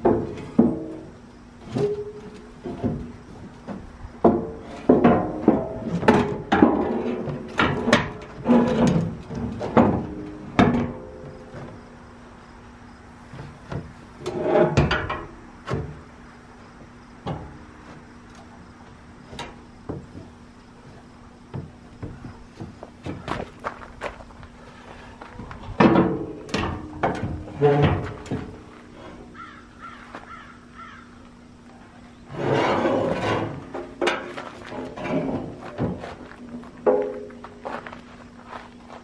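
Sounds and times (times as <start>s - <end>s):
metal blade clunking and knocking: 36.9s - 37.4s.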